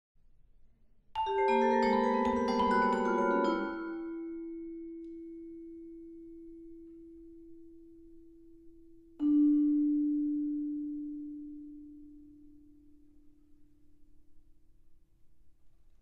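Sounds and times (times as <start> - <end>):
vibraphone notes ringing: 1.2 - 6.9, 9.2 - 12.9.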